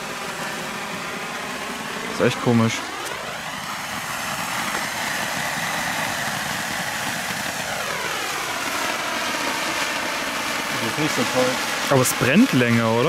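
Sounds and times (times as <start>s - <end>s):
flare burning with a hiss: 0.0s - 13.0s.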